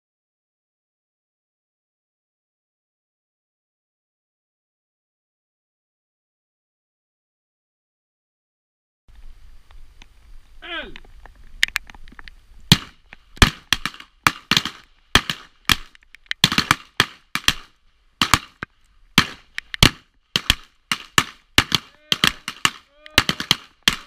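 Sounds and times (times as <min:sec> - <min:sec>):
revolver gunshots: 0:12.7 - 0:18.6, 0:19.2 - 0:24.0.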